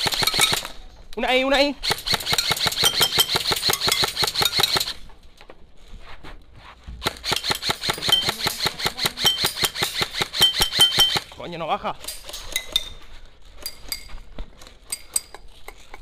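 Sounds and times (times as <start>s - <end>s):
airsoft rifle firing bursts: 0.0s - 0.8s, 1.8s - 5.0s, 7.0s - 11.3s.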